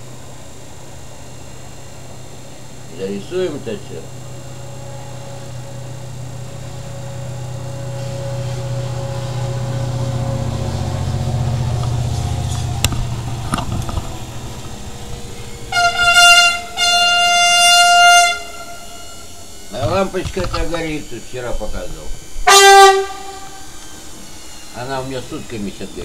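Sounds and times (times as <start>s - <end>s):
low hum: 0.0s - 26.0s
loud horn blasts: 3.9s - 12.9s, 14.1s - 25.5s.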